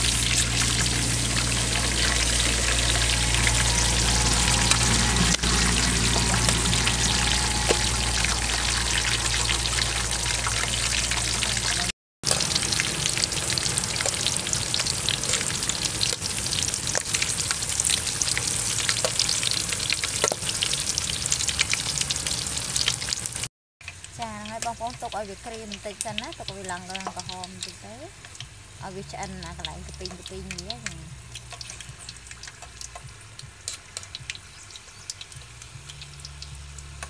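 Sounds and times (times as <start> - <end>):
low steady hum: 0.0 - 15.8
deep-frying sizzle in oil: 0.0 - 37.0.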